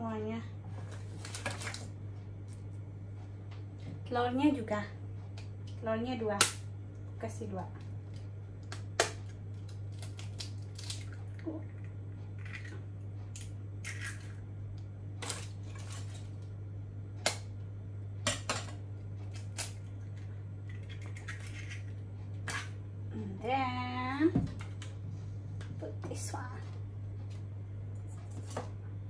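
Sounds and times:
low hum: 0.0s - 29.0s
eggs cracking on a bowl: 7.8s - 14.9s, 18.2s - 22.8s.

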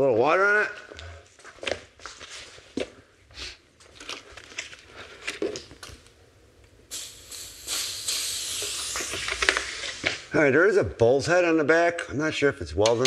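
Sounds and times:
torch hissing: 6.8s - 10.3s.

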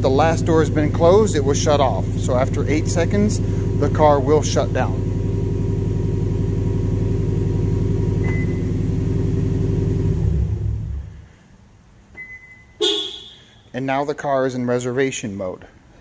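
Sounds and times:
car engine idling: 0.0s - 11.7s
short high beep: 12.2s - 13.7s.

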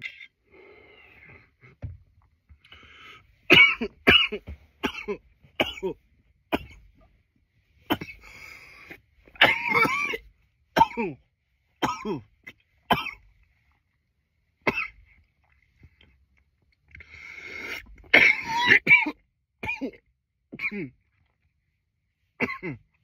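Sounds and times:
breathing: 0.4s - 1.8s, 2.5s - 3.5s, 8.2s - 9.2s, 17.0s - 18.0s
man coughing: 3.5s - 6.8s, 7.9s - 8.5s, 9.4s - 11.2s, 11.8s - 12.3s, 18.0s - 20.0s, 20.6s - 21.0s, 22.4s - 22.8s.

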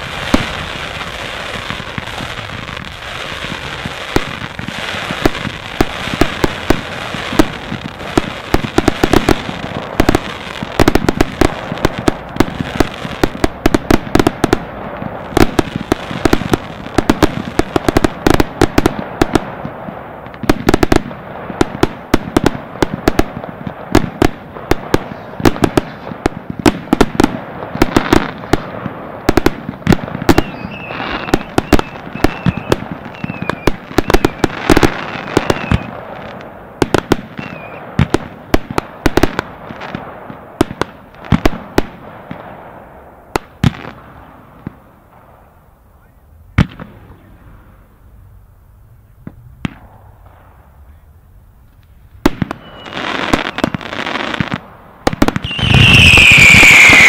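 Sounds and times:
firework batteries firing: 0.0s - 42.6s, 51.6s - 57.0s
firework crackles: 0.0s - 57.0s
high whistle: 30.4s - 34.6s, 35.3s - 35.9s, 37.4s - 37.8s, 52.5s - 53.8s, 55.4s - 57.0s.

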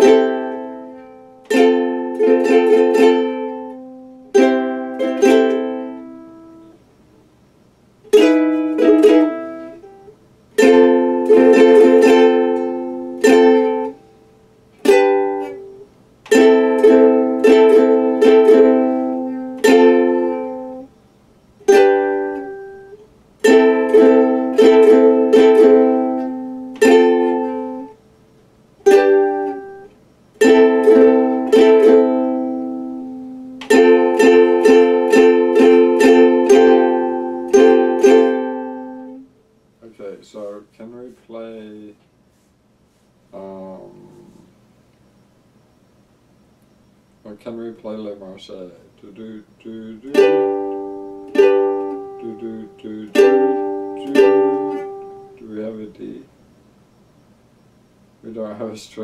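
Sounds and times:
plucked string instrument strumming: 0.0s - 6.8s, 8.1s - 21.0s, 21.6s - 28.0s, 28.8s - 39.3s, 49.2s - 56.2s.

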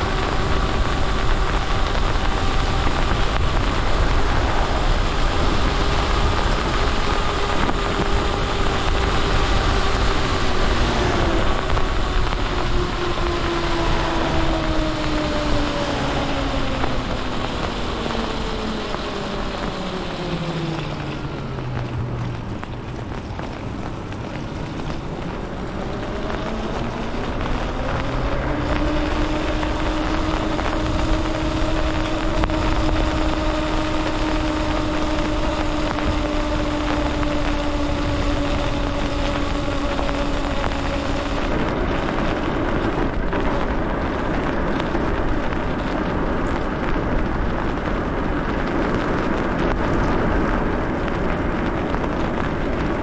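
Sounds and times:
electric bike motor whining: 0.0s - 21.8s, 24.9s - 47.1s
wind rushing: 0.0s - 22.5s
tyres on wet pavement: 0.0s - 53.0s.

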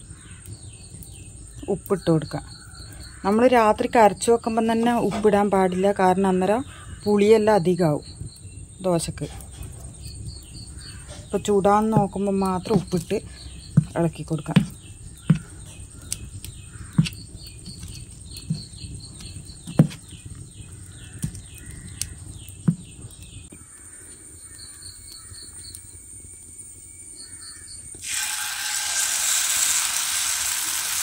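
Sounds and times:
bird chirping: 0.0s - 26.0s
hot pan sizzling: 7.1s - 23.9s, 25.1s - 31.0s
batter stirred in metal bowl: 11.1s - 21.6s.

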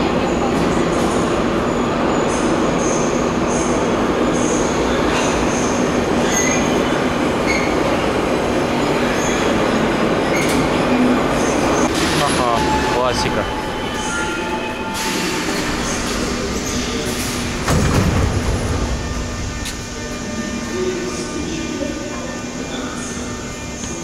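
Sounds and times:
high-pitched wheel squeals: 6.2s - 7.9s.

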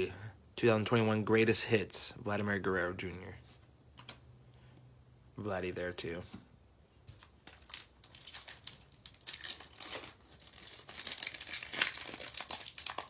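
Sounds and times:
wrapper crinkling and tearing: 7.2s - 13.0s.

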